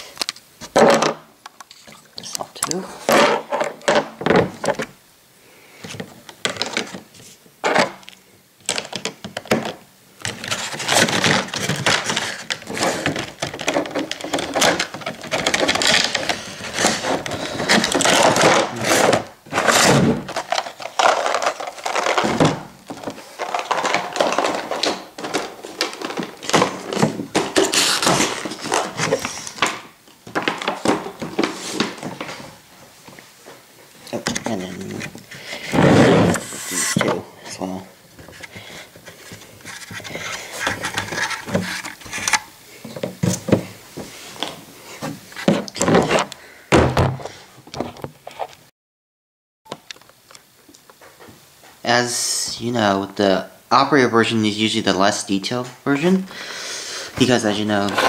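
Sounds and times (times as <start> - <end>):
stiff plastic crinkling and clicking: 7.8 - 32.4, 49.7 - 51.1.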